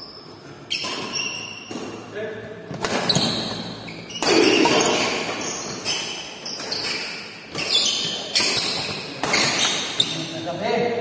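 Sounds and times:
racket striking shuttlecock: 2.7 - 3.5.

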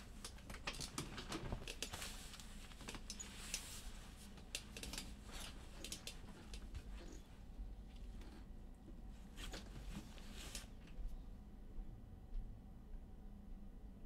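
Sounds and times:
faint low hum: 0.0 - 14.0
light clicks and taps: 0.1 - 7.2.

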